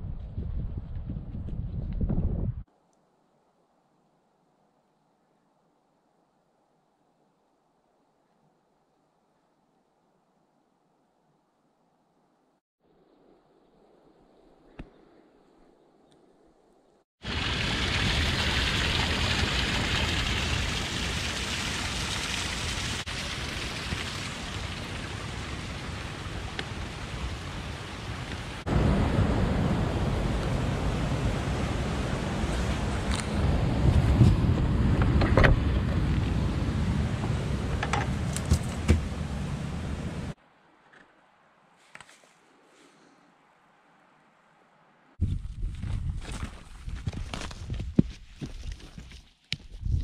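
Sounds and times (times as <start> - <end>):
wind buffeting microphone: 0.0 - 2.7, 24.4 - 40.4, 45.2 - 48.1
stream rushing over bedrock: 17.2 - 33.6.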